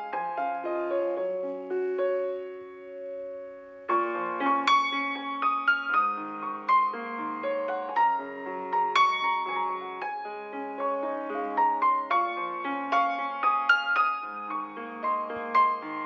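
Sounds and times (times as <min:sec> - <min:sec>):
gentle piano music: 0:00.0 - 0:16.0.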